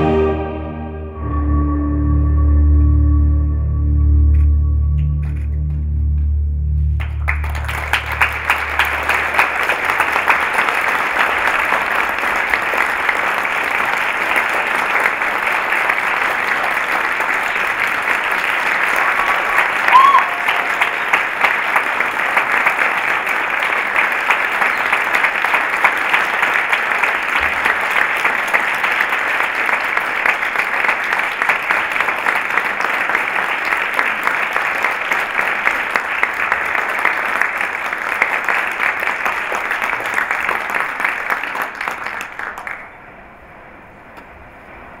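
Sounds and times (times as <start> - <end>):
audience applauding: 7.0 - 43.0.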